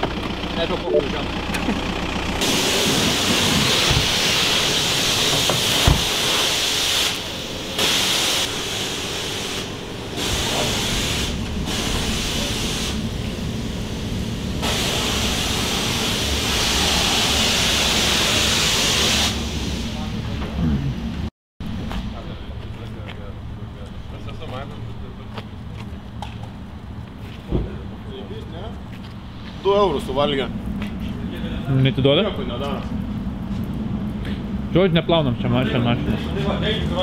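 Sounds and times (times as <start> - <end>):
pressure washer spray hissing: 2.4 - 20.1.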